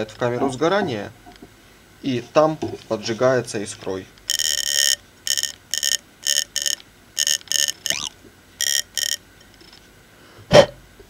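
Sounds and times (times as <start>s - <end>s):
spark igniter buzzing: 4.2s - 9.2s.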